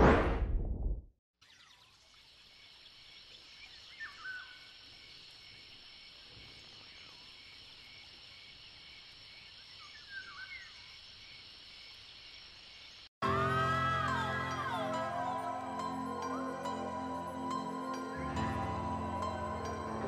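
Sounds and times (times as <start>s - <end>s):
insects droning: 1.6s - 13.1s.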